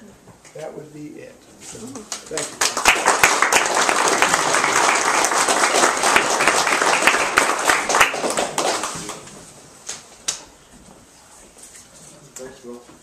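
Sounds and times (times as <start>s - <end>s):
audience applauding: 2.1s - 9.3s.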